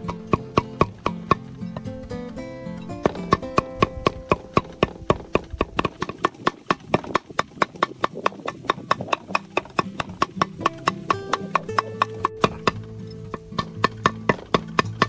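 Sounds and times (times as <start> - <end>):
cleaver chopping on wooden board: 0.0 - 1.5, 3.0 - 15.0.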